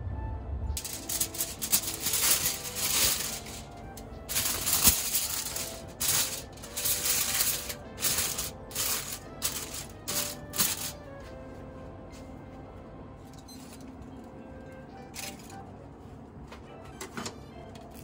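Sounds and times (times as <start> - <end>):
light background music: 0.0 - 18.0
aluminium foil crinkling: 0.8 - 11.0, 15.1 - 15.6.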